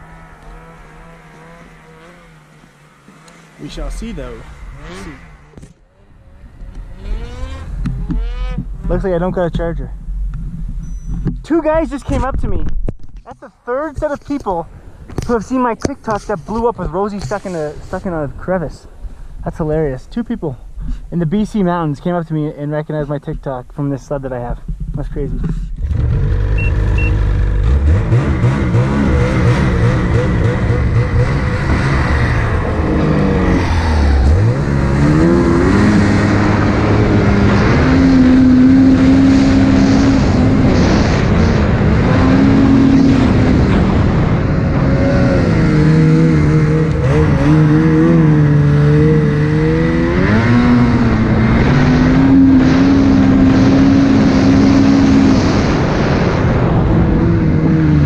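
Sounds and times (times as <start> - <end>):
snowmobile engine revving: 0.0 - 9.4, 25.8 - 58.0.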